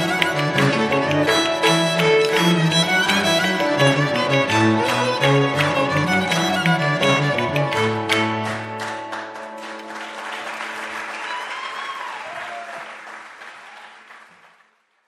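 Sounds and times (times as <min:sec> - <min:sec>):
strings holding notes: 0:00.0 - 0:11.0
audience applause: 0:00.0 - 0:15.0.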